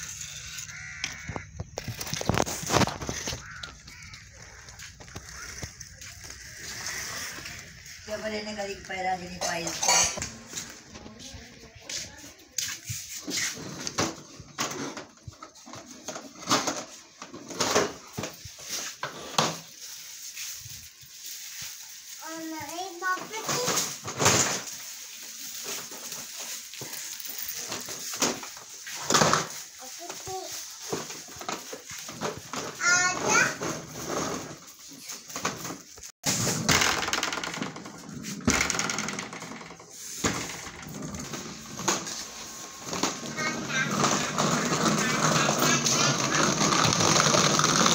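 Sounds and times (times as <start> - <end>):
plastic toy scraping on tiles: 4.9 - 8.5, 31.4 - 34.7, 36.3 - 47.9
plastic ride-on car rattling: 13.5 - 21.7, 22.3 - 47.9.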